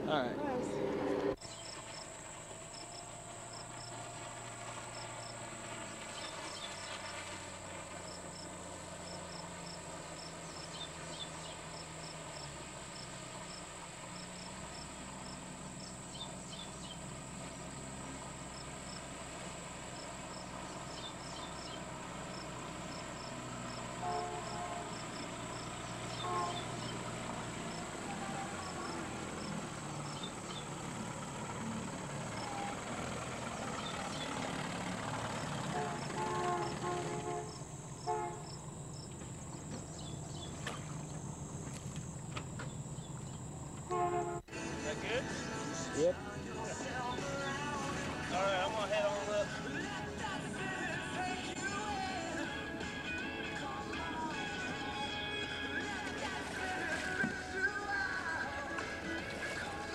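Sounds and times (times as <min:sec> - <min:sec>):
constant low hum: 0:00.0 - 0:59.9
higher insect calls: 0:01.4 - 0:44.5
crickets chirping: 0:01.4 - 0:59.9.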